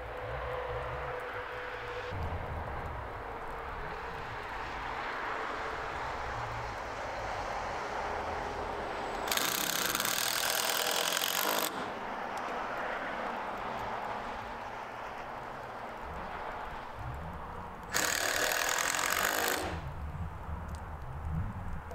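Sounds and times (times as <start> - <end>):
steady low rumble: 0.0 - 4.9, 19.8 - 21.9
cordless drill driving screw: 9.2 - 11.8, 17.9 - 19.8.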